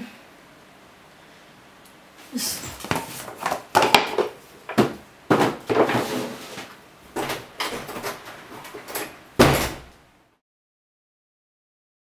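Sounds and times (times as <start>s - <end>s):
knocks and bumps of handling: 2.6s - 6.0s.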